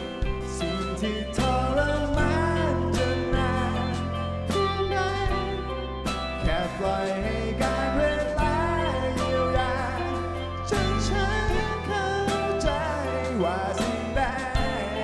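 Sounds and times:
bass: 0.0s - 15.0s
drum beats: 0.0s - 15.0s
man singing: 0.0s - 15.0s
strummed acoustic guitar: 0.0s - 15.0s.

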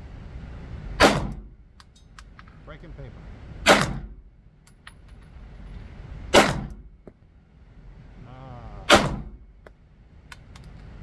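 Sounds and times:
pistol shots: 1.0s - 1.4s, 3.6s - 4.1s, 6.3s - 6.8s, 8.9s - 9.4s.

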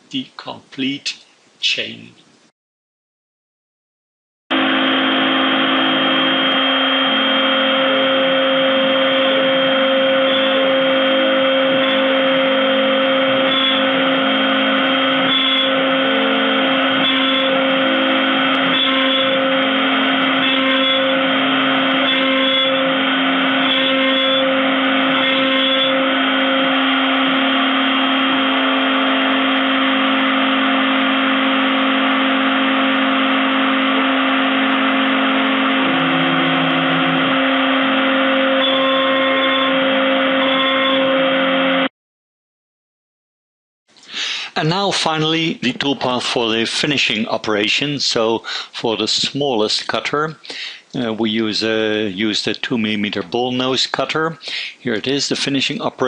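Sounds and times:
end mill cutting wood: 4.5s - 41.9s
router spindle high whine: 4.5s - 41.9s.

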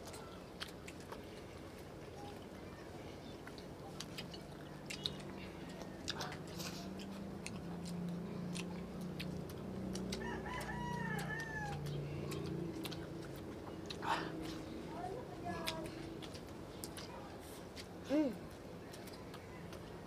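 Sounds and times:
rooster crowing: 10.2s - 11.9s.

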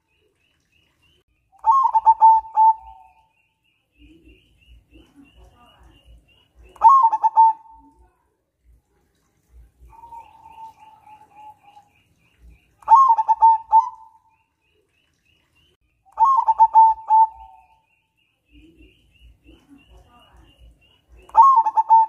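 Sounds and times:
faint high bird chirps: 0.0s - 8.2s, 9.8s - 22.0s
dove cooing: 1.6s - 3.2s, 6.7s - 7.9s, 9.8s - 11.9s, 12.8s - 14.2s, 16.2s - 17.8s, 21.3s - 22.0s.

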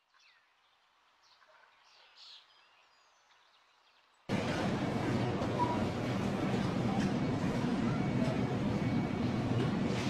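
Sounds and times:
supermarket background noise: 4.3s - 10.0s.

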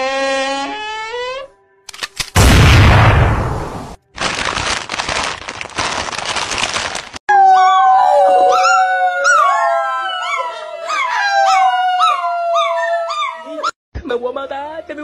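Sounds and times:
crisp bag crinkling: 4.0s - 7.2s
dog howling: 7.3s - 13.8s.

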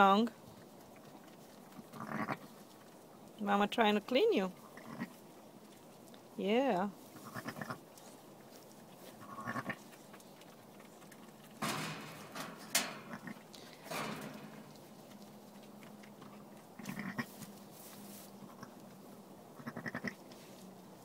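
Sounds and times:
rustling in straw: 6.9s - 10.0s, 17.2s - 18.9s, 20.2s - 20.8s.

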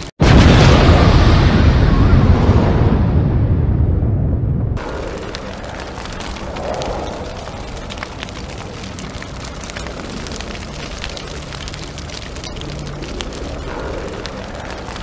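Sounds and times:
crackling with clicks and pops: 4.8s - 15.0s.

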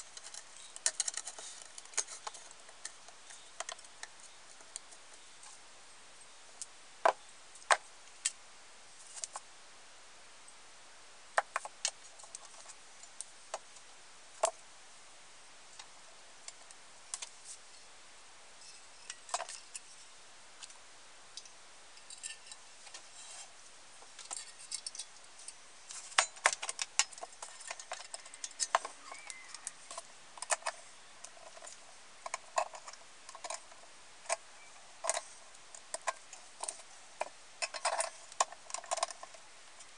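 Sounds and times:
metal stove parts clicking: 0.0s - 4.1s, 24.2s - 34.4s, 35.0s - 39.4s.

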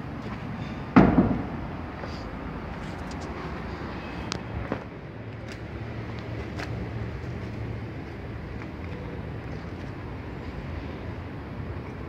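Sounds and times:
urban background rumble: 0.0s - 12.0s.

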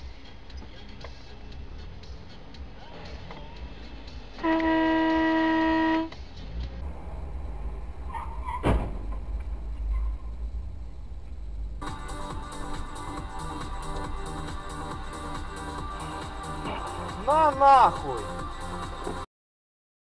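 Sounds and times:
road rumble: 0.0s - 19.3s
car horn: 4.4s - 6.2s
sharp bang: 8.6s - 9.3s.

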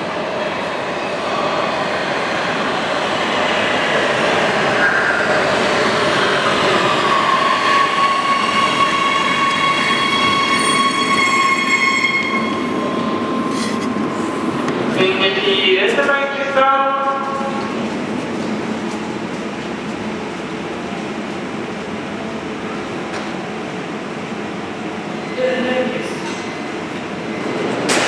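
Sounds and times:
train wheels rumbling on rails: 1.5s - 24.0s
high braking tones: 6.6s - 14.5s.

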